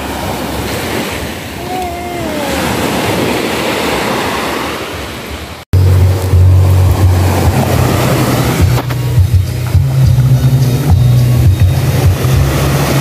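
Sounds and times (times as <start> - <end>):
waves washing up shore: 0.0 - 13.0
background music: 5.8 - 13.0.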